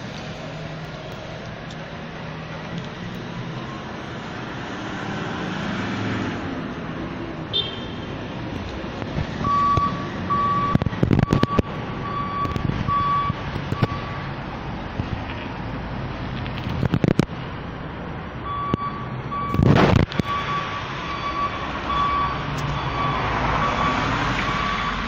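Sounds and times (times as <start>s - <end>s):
vehicle engine rumbling: 0.0s - 25.0s.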